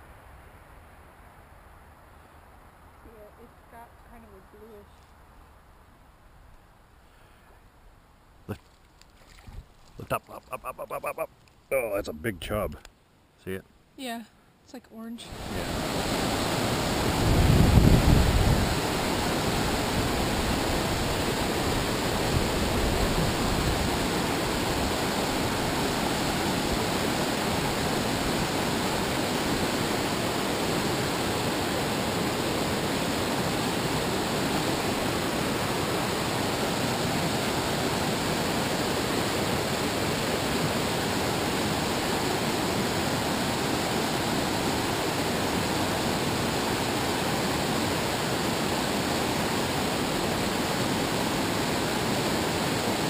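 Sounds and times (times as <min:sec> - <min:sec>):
river rapids rushing over rocks: 0:15.3 - 0:53.0.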